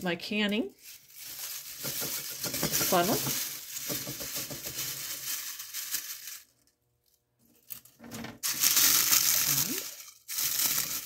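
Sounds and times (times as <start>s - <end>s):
dry leaves crackling and crunching: 0.8s - 6.5s, 8.6s - 11.0s.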